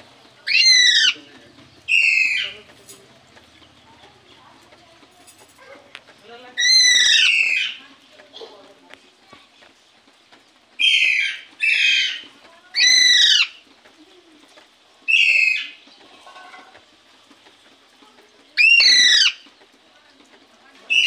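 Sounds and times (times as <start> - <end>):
parakeet calls: 0.4 - 2.6, 6.6 - 7.8, 10.8 - 13.6, 15.1 - 16.2, 18.6 - 19.5.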